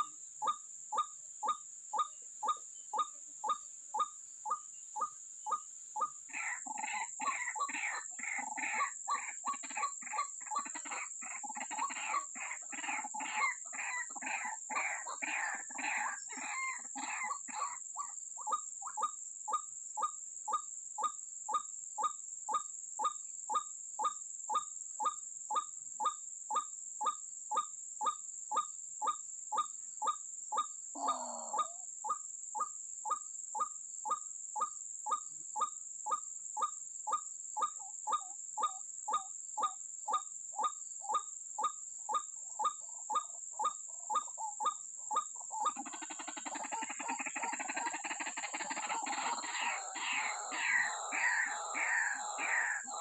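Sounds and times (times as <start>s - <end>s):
repeated bird call: 0.0s - 53.0s
lower falling bird call: 48.6s - 53.0s.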